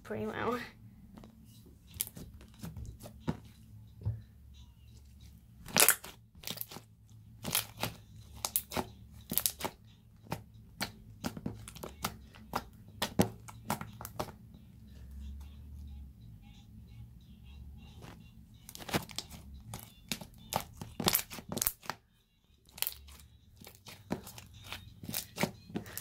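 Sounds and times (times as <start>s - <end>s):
sticky slime popping and crackling: 5.6s - 14.3s, 18.7s - 22.0s, 22.7s - 26.0s.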